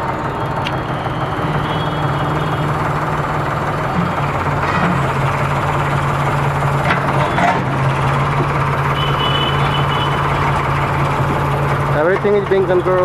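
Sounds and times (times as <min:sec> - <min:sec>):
tractor diesel engine running: 0:00.0 - 0:13.0
backhoe bucket digging soil: 0:03.9 - 0:05.5.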